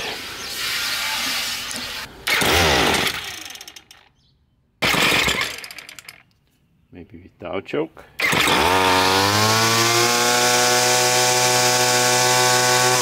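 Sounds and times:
string trimmer engine starting: 2.2 - 4.1, 4.8 - 6.3, 8.2 - 13.0.

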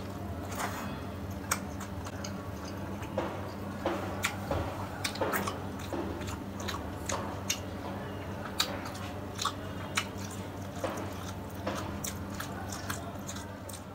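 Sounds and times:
person chewing: 0.0 - 13.9.

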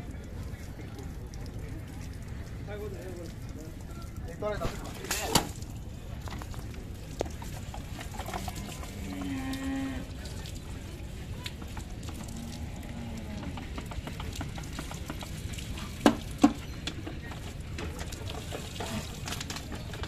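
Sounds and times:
cow mooing: 8.4 - 10.1, 12.2 - 13.6.

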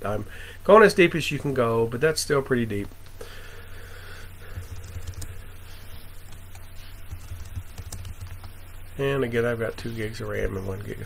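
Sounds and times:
steady low hum: 0.0 - 11.0
computer keyboard keystrokes: 4.5 - 5.4, 6.3 - 8.5.

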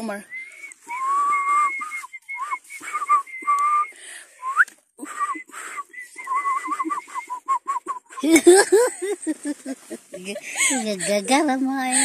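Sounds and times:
person whistling a tune: 0.2 - 8.4.

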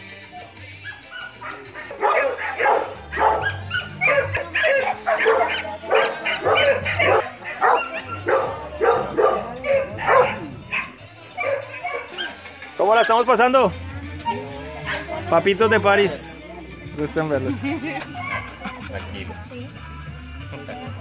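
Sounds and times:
dog barking: 0.8 - 12.4, 18.1 - 18.6.

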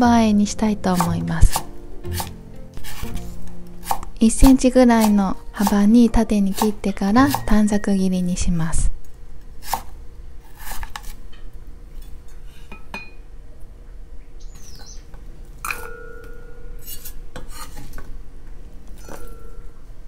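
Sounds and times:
knife on wooden cutting board: 0.9 - 4.1, 9.6 - 11.2
ringing clinks of a bowl: 15.7 - 16.8, 19.0 - 19.8.

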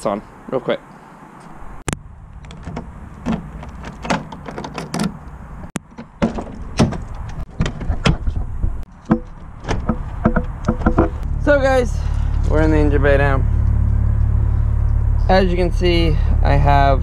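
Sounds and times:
car door clicking and opening: 2.4 - 11.2
low steady rumble: 6.6 - 17.0.

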